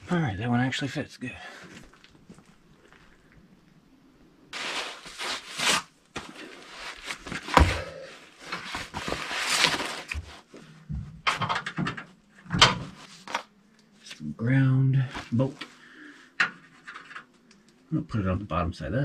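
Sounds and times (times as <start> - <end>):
cardboard crinkling and scraping: 4.6 - 10.6, 12.8 - 13.5.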